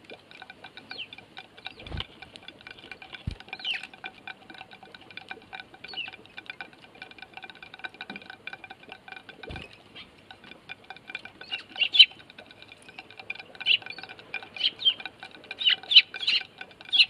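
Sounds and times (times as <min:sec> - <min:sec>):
beaks ticking on a dish: 0:00.0 - 0:17.0
sparrow chirps: 0:03.6 - 0:03.9, 0:11.4 - 0:12.2, 0:13.6 - 0:15.0, 0:15.6 - 0:17.0.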